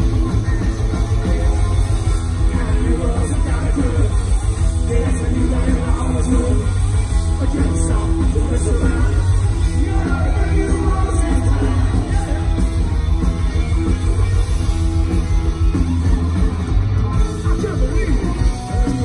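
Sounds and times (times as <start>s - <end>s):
bass guitar: 0.0s - 19.0s
distorted electric guitar: 0.0s - 19.0s
drums: 0.0s - 19.0s
person singing: 0.3s - 12.8s.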